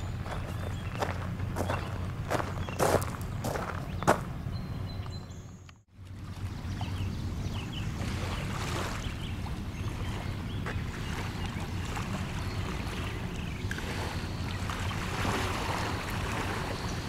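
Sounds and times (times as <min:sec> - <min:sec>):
footstep on woodland trail: 0:00.0 - 0:05.3
low outdoor rumble: 0:00.0 - 0:17.0.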